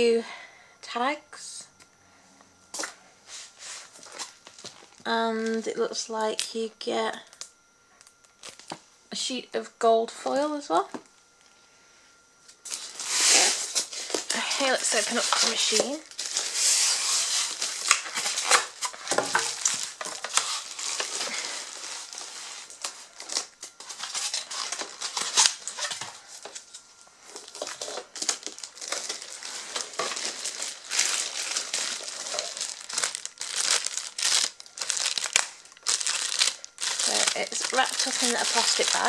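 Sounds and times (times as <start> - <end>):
plastic bag crinkling: 3.9 - 5.7, 8.3 - 8.8, 12.7 - 39.0
polystyrene pieces rubbing: 12.7 - 26.6, 27.4 - 39.0.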